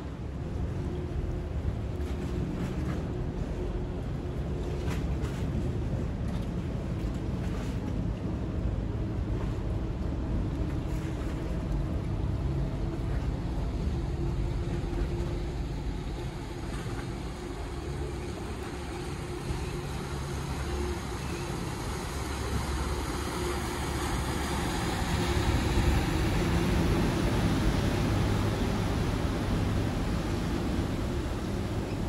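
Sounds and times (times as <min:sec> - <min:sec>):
boat wake churning: 0:00.0 - 0:32.0
ferry engines running: 0:00.0 - 0:32.0.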